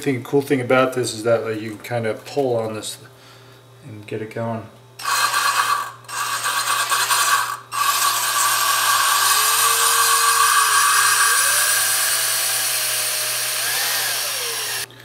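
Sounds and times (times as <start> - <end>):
power drill grinding valve: 5.0 - 14.9.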